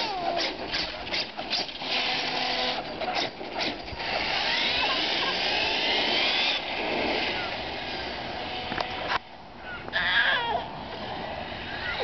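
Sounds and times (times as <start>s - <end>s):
electric motor whine: 1.7s - 2.9s, 3.9s - 9.2s.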